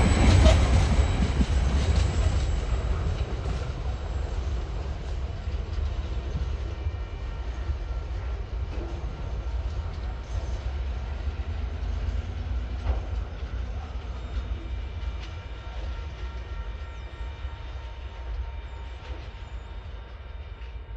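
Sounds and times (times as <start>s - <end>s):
train wagons rumbling on track: 0.0s - 20.9s.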